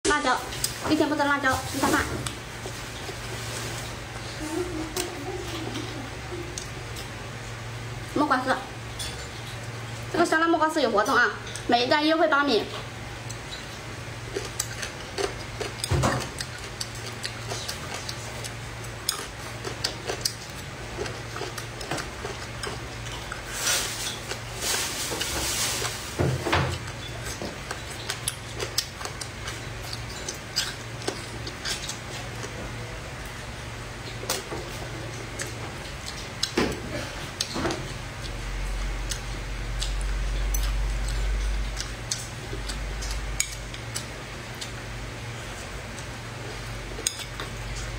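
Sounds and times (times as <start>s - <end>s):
steady low hum: 0.0s - 47.9s
chewing sounds: 13.2s - 26.0s, 26.7s - 33.4s, 34.0s - 47.9s.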